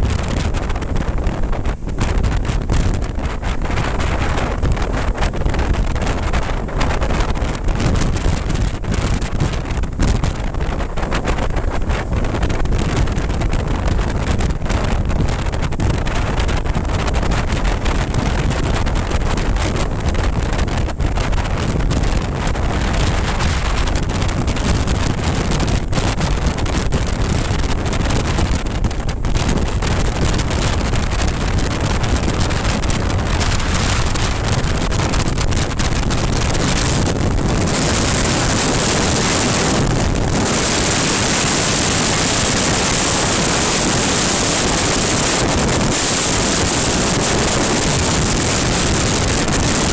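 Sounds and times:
wind buffeting microphone: 0.0 - 49.9
road noise: 29.6 - 49.9.

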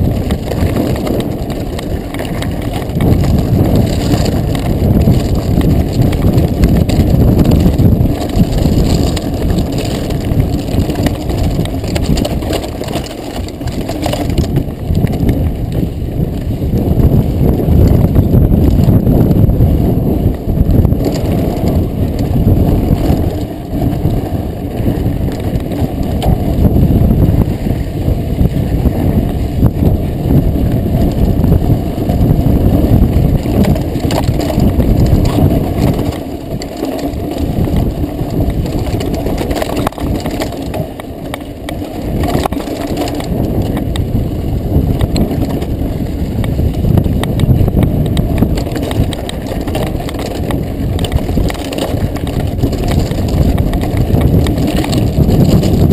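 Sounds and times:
bike tyres crunching over stones: 0.0 - 55.9
wind buffeting microphone: 0.0 - 55.9.

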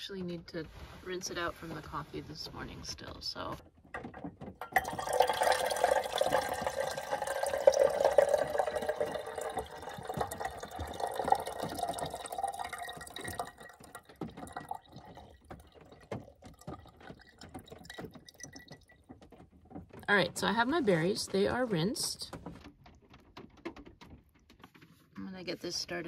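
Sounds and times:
water pouring into metal kettle: 4.6 - 19.0
water dripping: 4.6 - 23.2.

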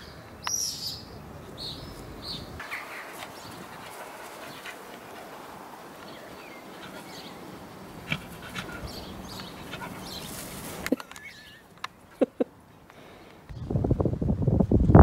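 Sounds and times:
small birds chirping: 0.0 - 13.8
puppy panting and whimpering: 8.0 - 10.5.

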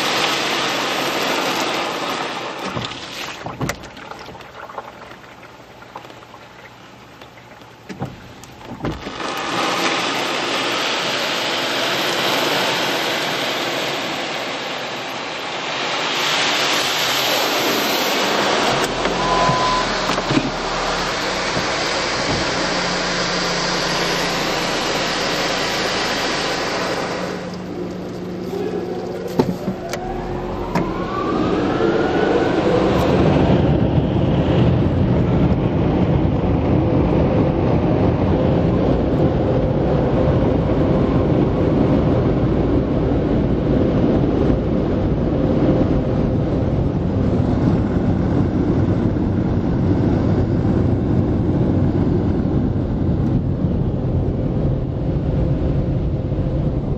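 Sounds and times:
air dryer blowers rushing: 7.9 - 15.0, 16.5 - 35.0
blower motor whine: 17.4 - 55.8.

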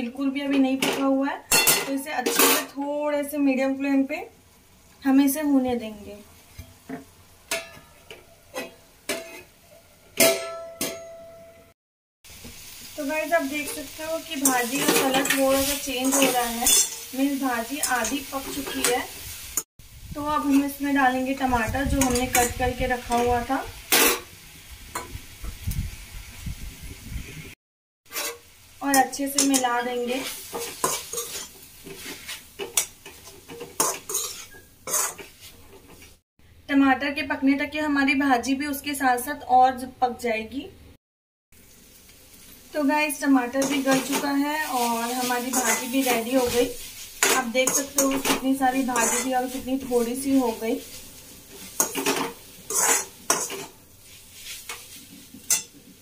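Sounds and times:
faint sizzle: 0.0 - 10.2, 12.3 - 39.5, 41.6 - 56.0
metal utensil scraping a pan: 7.5 - 9.5, 13.6 - 19.6, 28.1 - 36.1, 43.4 - 56.0.

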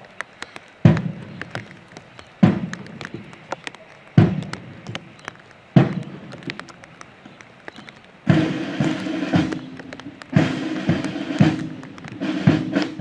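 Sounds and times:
bass drum beats: 2.4 - 3.4, 4.2 - 5.2, 5.8 - 6.6, 8.3 - 13.0.

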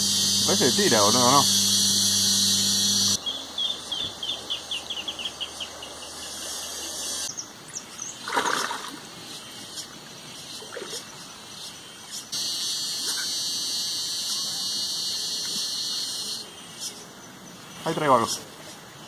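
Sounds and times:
bird chirping: 0.1 - 8.3
fish splashing in water: 8.2 - 9.1.

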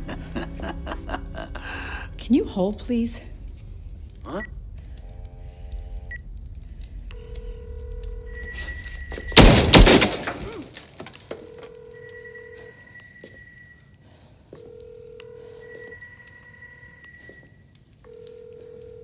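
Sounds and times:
loud bangs: 9.3 - 10.8
electronic telephone ringtone: 11.4 - 13.0.

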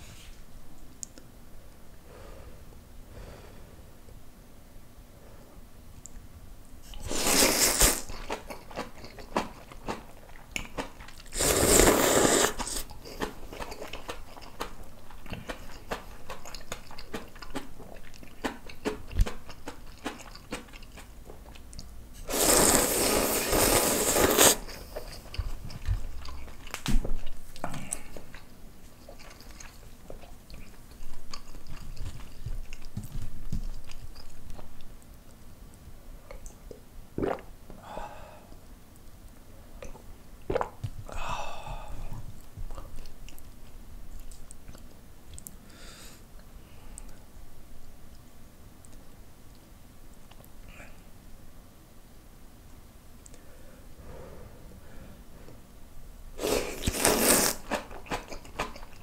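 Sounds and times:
noodle slurping: 6.9 - 10.0, 11.2 - 14.6, 22.2 - 25.4, 56.4 - 58.8
wet chewing: 6.9 - 35.0, 56.4 - 59.0.

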